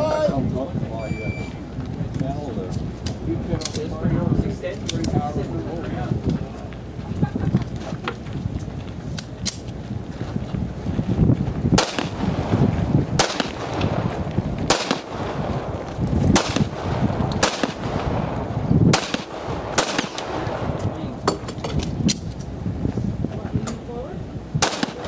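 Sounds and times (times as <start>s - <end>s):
pistol shots: 11.8s - 12.3s, 13.2s - 14.1s, 14.7s - 15.4s, 16.3s - 18.2s, 18.9s - 20.7s, 24.6s - 25.0s.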